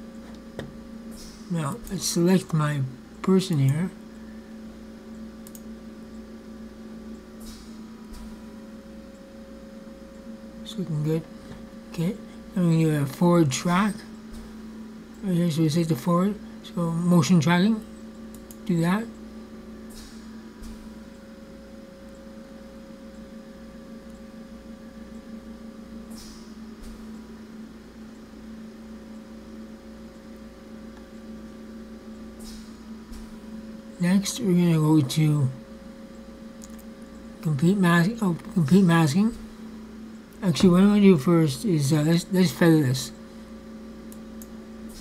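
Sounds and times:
steady electrical hum: 0:00.0 - 0:45.0
computer mouse clicks: 0:05.4 - 0:05.7.

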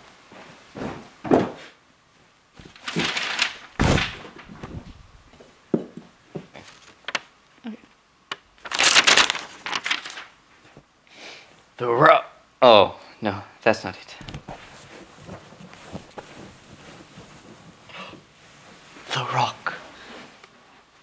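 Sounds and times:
knocks of cushions being handled: 0:00.7 - 0:01.7, 0:14.2 - 0:18.4
rustling and crinkling: 0:02.5 - 0:07.3, 0:08.3 - 0:10.9, 0:14.1 - 0:21.0.

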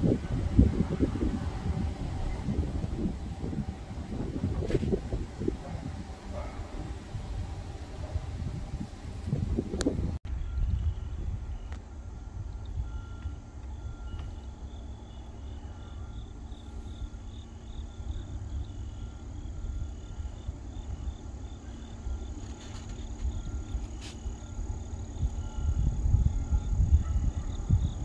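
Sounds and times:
steady low rumble: 0:00.0 - 0:28.0
insects chirping: 0:10.3 - 0:28.0.

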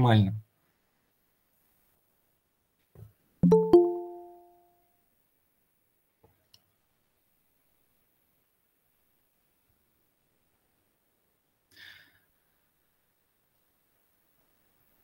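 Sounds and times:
two-note electronic chime: 0:03.4 - 0:04.7.

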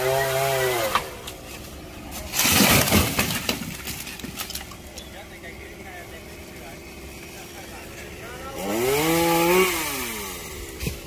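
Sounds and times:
branches cracking and snapping: 0:00.1 - 0:05.1
tree limb crashing to ground: 0:00.8 - 0:04.9
chainsaw winding down: 0:06.9 - 0:10.8.

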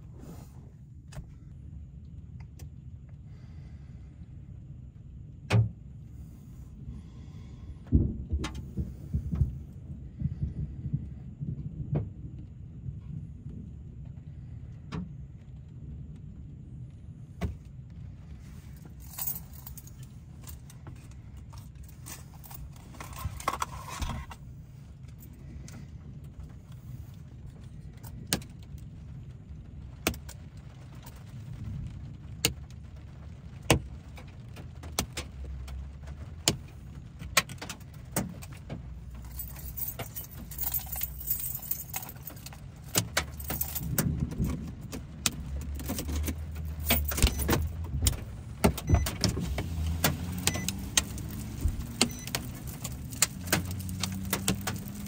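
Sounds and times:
low steady rumble: 0:00.0 - 0:55.0
hail clicking on car: 0:07.8 - 0:12.5, 0:25.1 - 0:55.0.

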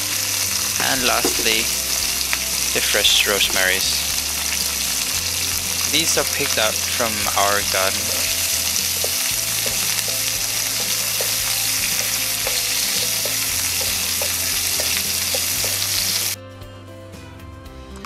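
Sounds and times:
vegetables sizzling in a pan: 0:00.0 - 0:16.4
soft background music: 0:00.0 - 0:18.0.

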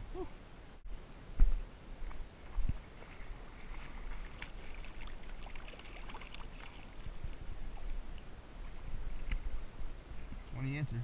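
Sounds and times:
wind rumble on microphone: 0:00.0 - 0:04.3
shallow water splashing: 0:02.0 - 0:09.9.

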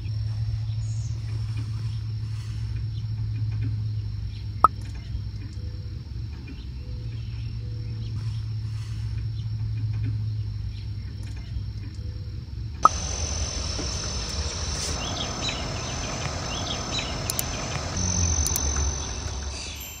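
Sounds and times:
faint chirps: 0:12.8 - 0:20.0
high-pitched insect drone: 0:12.8 - 0:20.0.

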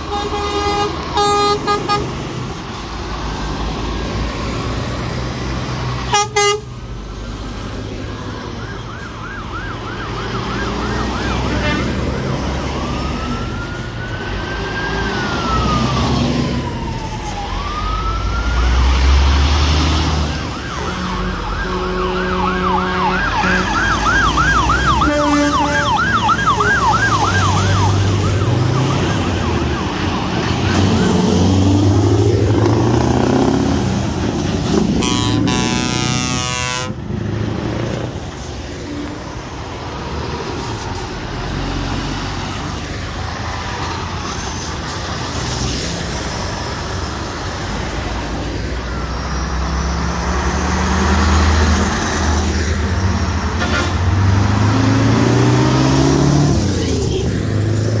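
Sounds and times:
vehicle horn: 0:00.0 - 0:02.1, 0:06.1 - 0:06.7, 0:11.5 - 0:12.0, 0:20.8 - 0:23.9, 0:24.9 - 0:26.0, 0:34.9 - 0:37.0, 0:53.6 - 0:54.1
lorry diesel engines rumbling: 0:00.0 - 0:58.0
siren yelping: 0:08.3 - 0:11.6, 0:12.4 - 0:19.4, 0:20.2 - 0:33.5.

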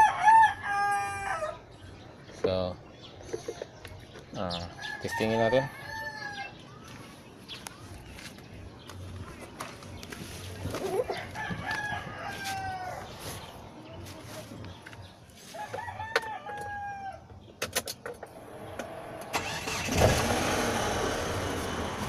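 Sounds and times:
rooster crowing: 0:00.0 - 0:01.6, 0:04.8 - 0:06.5, 0:11.3 - 0:13.1, 0:15.5 - 0:17.2
car engine starting and running: 0:18.2 - 0:22.0.

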